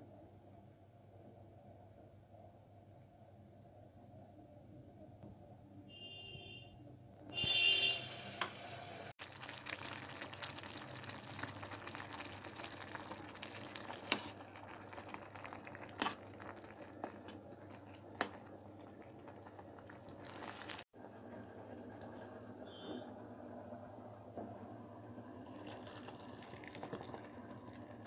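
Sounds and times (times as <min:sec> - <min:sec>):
rice boiling in pot: 0:07.3 - 0:28.0.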